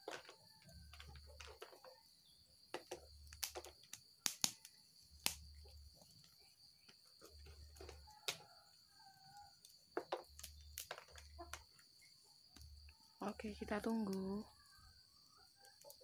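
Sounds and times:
insect drone: 0:00.0 - 0:16.0
wood fire crackling: 0:00.0 - 0:16.0.

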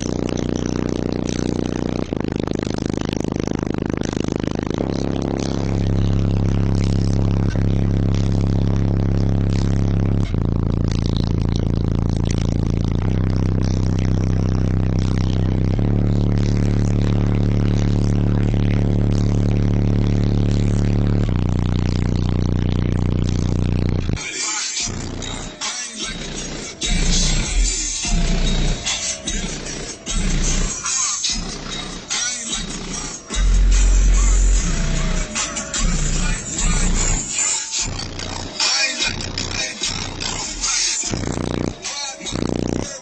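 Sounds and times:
buzzing rattling: 0:00.0 - 0:24.2, 0:24.8 - 0:42.9
car subwoofers playing deep bass: 0:00.0 - 0:43.0.

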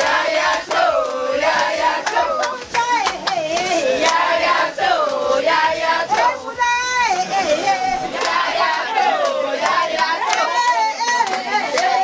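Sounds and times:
hand claps: 0:00.0 - 0:06.4, 0:08.1 - 0:12.0
group of people singing: 0:00.0 - 0:12.0.

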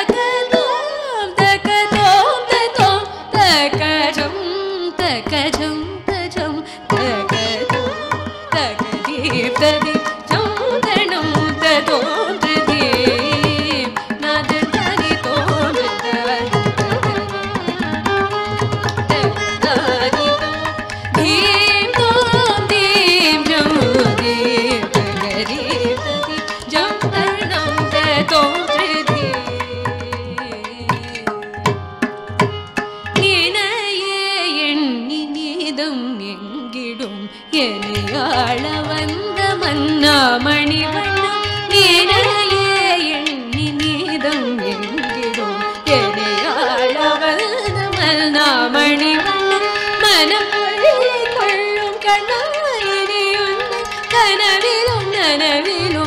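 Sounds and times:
violin: 0:00.0 - 0:56.0
woman singing: 0:00.0 - 0:56.0
hand drums: 0:05.0 - 0:33.5, 0:37.9 - 0:46.2.

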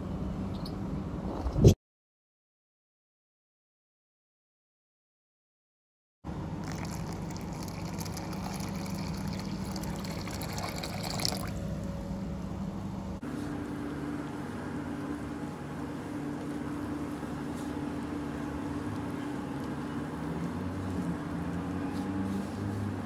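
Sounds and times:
steady low hum: 0:06.3 - 0:21.7
water pouring into bowl: 0:06.6 - 0:11.6.

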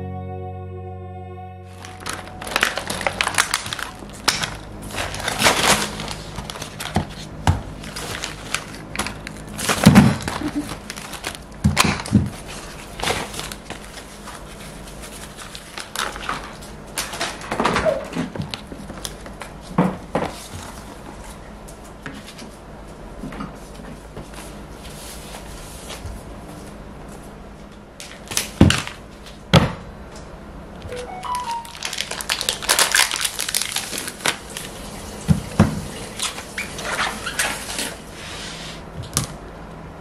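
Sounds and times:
bag and packaging rustling: 0:01.8 - 0:11.5.

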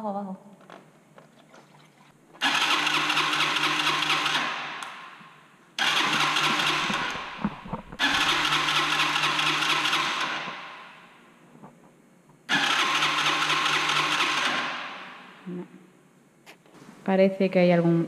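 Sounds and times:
scooter electric starter cranking: 0:02.4 - 0:04.9, 0:05.8 - 0:10.6, 0:12.5 - 0:14.9.

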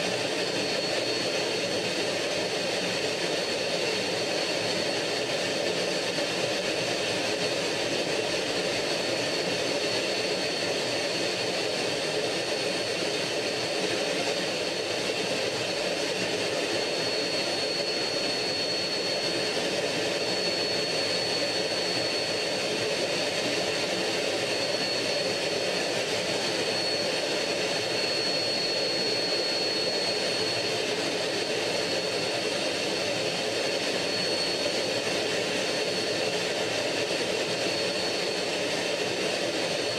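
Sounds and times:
jet engine and airflow rush: 0:00.0 - 0:39.9
thin high engine whine: 0:00.0 - 0:39.9.

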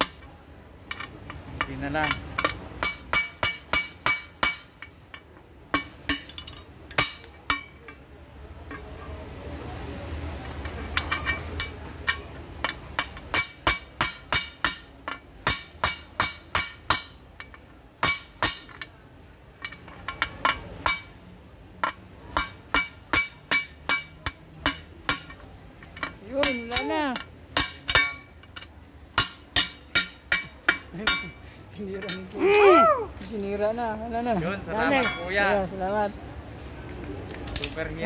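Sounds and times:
hammer striking steel punch: 0:01.6 - 0:04.9, 0:05.7 - 0:08.0, 0:11.1 - 0:18.9, 0:19.6 - 0:21.2, 0:21.8 - 0:31.4.

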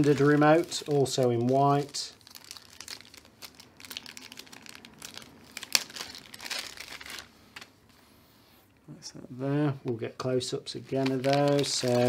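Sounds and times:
plastic packaging crinkling: 0:00.0 - 0:07.7, 0:10.8 - 0:12.0.

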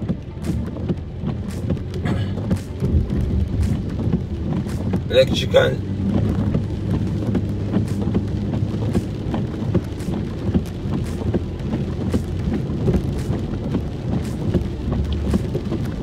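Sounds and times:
car engine and road rumble: 0:00.0 - 0:16.0
rain on car: 0:00.0 - 0:16.0
windshield wipers swishing: 0:00.0 - 0:16.0.

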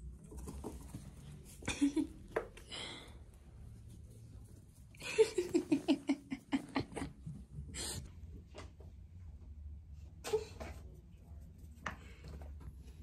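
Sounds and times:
woman laughing: 0:01.6 - 0:02.2, 0:05.0 - 0:08.0.

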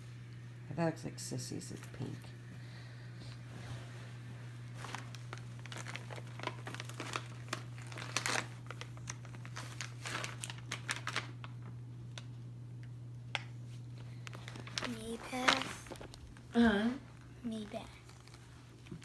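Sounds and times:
steady low hum: 0:00.0 - 0:19.0
paper and plastic crinkling: 0:04.7 - 0:12.3, 0:13.7 - 0:16.5, 0:17.2 - 0:19.0.

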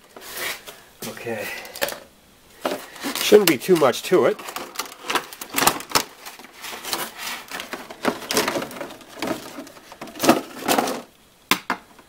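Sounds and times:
plastic packaging crackling: 0:02.6 - 0:11.2.

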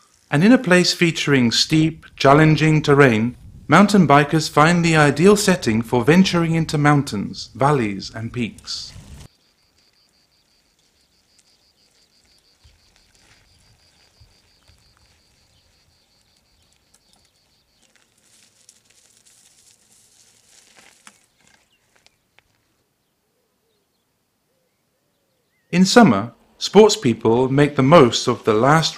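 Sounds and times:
faint rustling: 0:08.6 - 0:22.8
insect chirping trill: 0:09.0 - 0:20.5.

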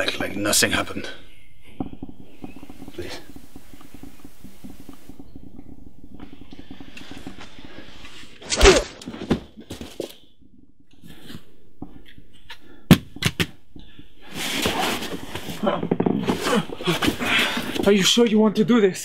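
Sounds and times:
sharp crack: 0:08.1 - 0:09.1.

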